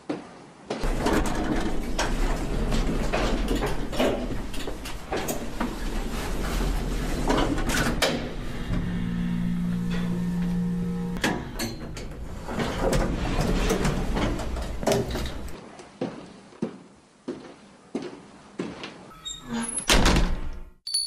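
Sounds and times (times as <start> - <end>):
scattered clicks and knocks: 0.8 - 6.0
steady low hum: 0.8 - 15.6.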